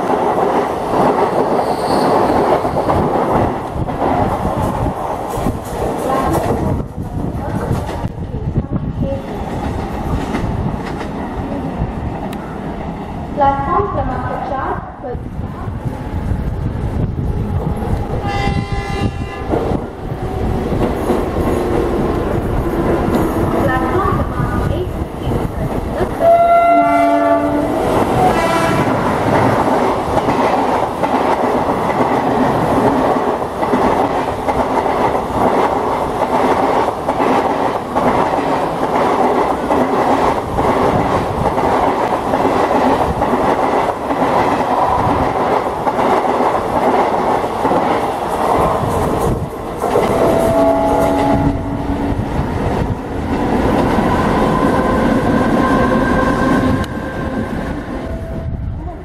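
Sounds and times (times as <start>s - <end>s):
train rumbling over rails: 0.0s - 59.0s
train horn: 18.2s - 19.6s, 26.2s - 29.1s, 50.1s - 52.1s.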